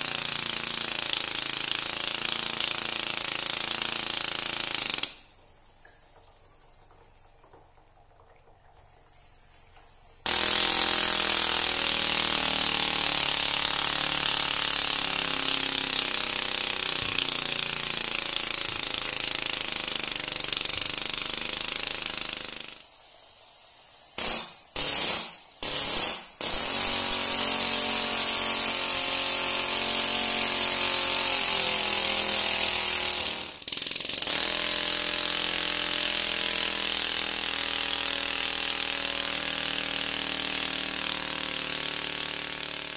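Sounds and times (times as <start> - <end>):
gas hissing: 8.9 - 28.4
miniature engine buzzing: 10.3 - 22.8, 25.8 - 42.9.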